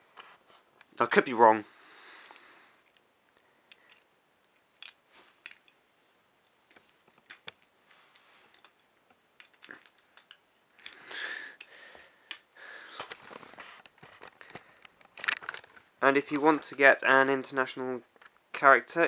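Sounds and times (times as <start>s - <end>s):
rustling: 12.8s - 17.0s.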